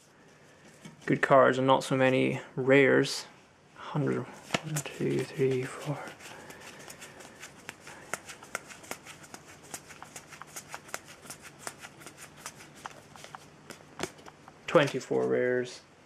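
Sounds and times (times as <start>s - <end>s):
trading cards snapping and flicking: 4.5s - 15.0s.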